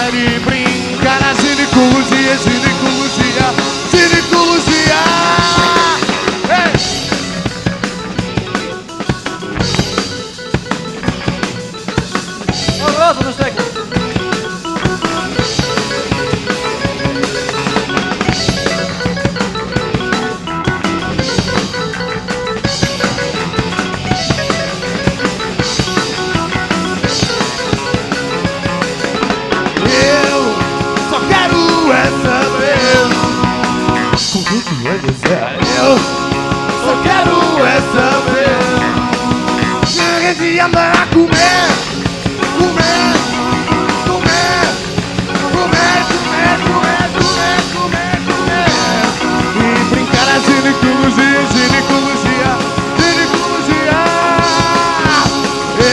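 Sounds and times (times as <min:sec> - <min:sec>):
melodic line: 0:00.0 - 0:34.8
drum kit beat: 0:00.0 - 0:55.9
electric guitars: 0:00.0 - 0:55.9.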